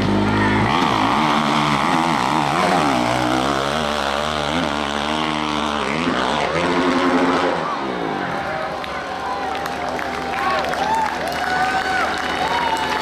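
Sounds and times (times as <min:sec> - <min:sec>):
dirt bike engine revving: 0:00.0 - 0:08.4.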